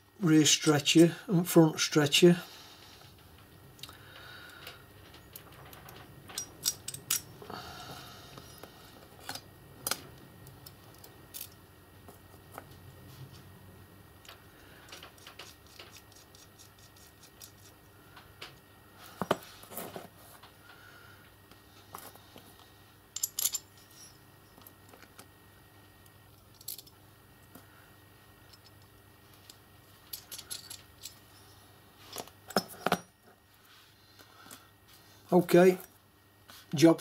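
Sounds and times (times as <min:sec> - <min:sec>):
faint steady hum: 0:00.0 - 0:37.0
metal parts clinking: 0:04.6 - 0:07.4, 0:08.4 - 0:11.6, 0:23.1 - 0:24.7, 0:26.5 - 0:27.0, 0:28.5 - 0:33.2.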